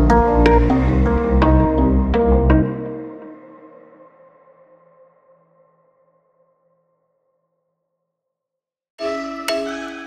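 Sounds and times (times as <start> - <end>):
background music with deep bass: 0.0 - 3.7.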